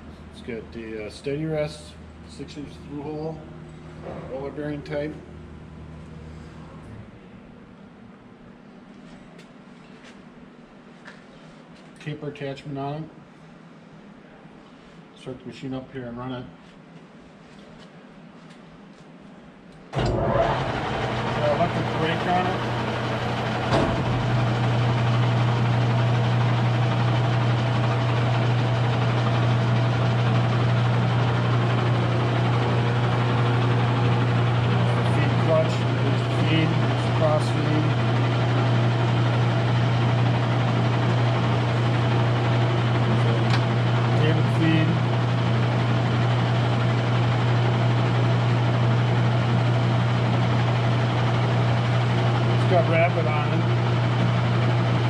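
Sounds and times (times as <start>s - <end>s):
lathe running with steady hum: 20.0s - 55.0s.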